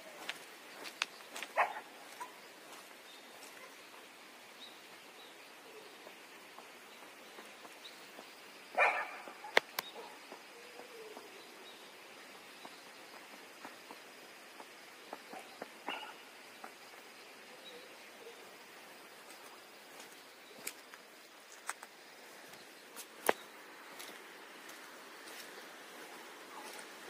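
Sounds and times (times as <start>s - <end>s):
dog barking: 1.6s - 2.3s, 8.8s - 10.2s, 15.9s - 16.2s
sneaker footsteps on concrete: 19.2s - 27.0s.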